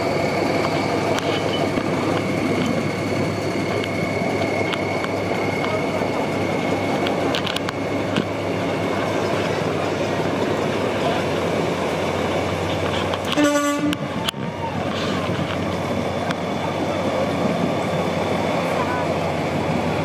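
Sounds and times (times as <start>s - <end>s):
truck engines rumbling: 0.0s - 20.0s
truck air horn blast: 13.3s - 14.1s.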